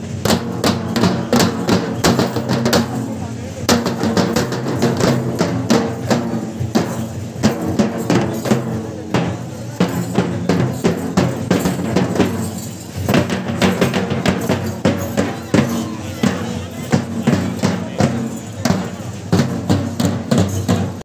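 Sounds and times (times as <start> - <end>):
hand drums fast rhythm: 3.7 - 12.5, 13.1 - 21.0.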